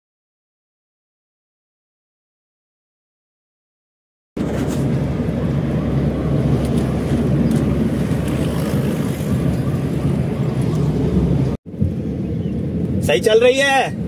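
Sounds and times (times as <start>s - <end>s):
car engine hum: 4.4s - 14.0s
road noise: 4.4s - 14.0s
wind noise: 4.4s - 14.0s.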